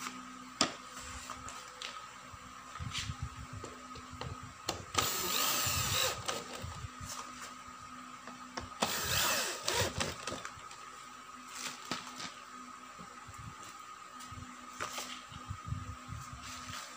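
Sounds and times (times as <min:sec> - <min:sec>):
electric drill driving screws: 0:04.9 - 0:06.6, 0:08.8 - 0:10.5.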